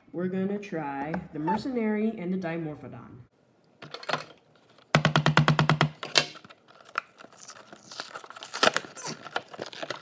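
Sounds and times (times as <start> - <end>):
plastic packaging clicks and crackles: 6.0 - 10.0.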